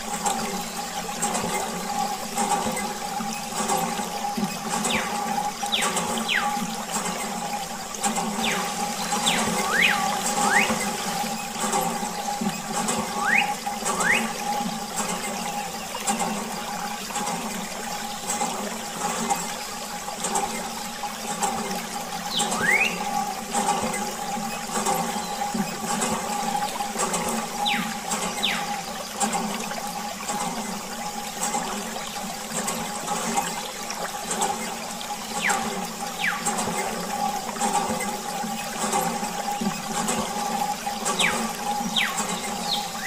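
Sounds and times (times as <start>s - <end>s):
steady hum: 0.0s - 19.8s
water trickling from a tube: 0.0s - 43.0s.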